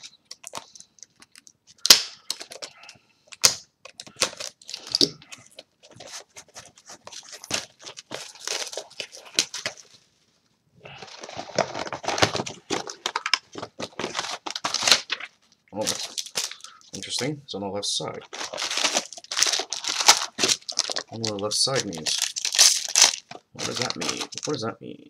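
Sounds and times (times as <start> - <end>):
plastic and foil packaging crinkling: 0.0 - 10.1, 10.9 - 17.3, 18.2 - 24.6.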